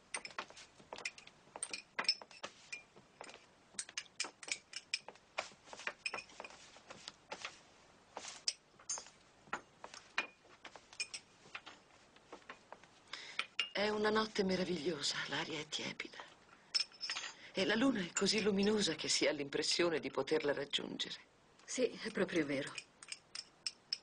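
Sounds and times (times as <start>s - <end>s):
crockery and cutlery clinking: 8.4s - 11.8s.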